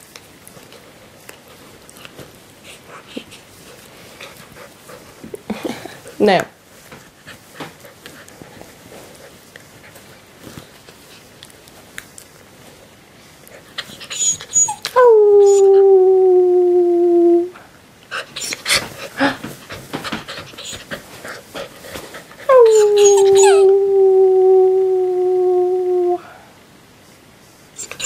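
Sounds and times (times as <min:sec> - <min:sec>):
puppy howling: 0:14.1 - 0:17.6, 0:22.5 - 0:26.3.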